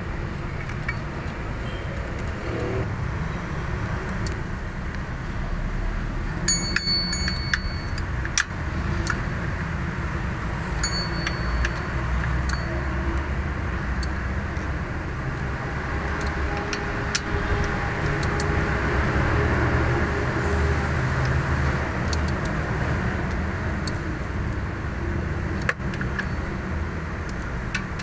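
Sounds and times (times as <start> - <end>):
road traffic rumble: 0.0 - 28.0
metallic rings: 6.5 - 8.0, 10.8 - 12.9.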